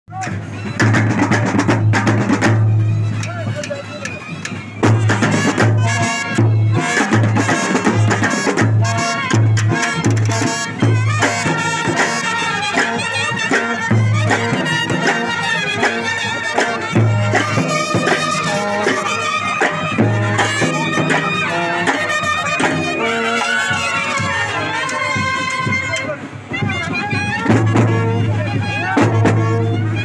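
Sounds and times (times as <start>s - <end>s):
bass drum beats: 0.1s - 3.8s, 4.4s - 30.0s
brass band playing: 0.1s - 30.0s.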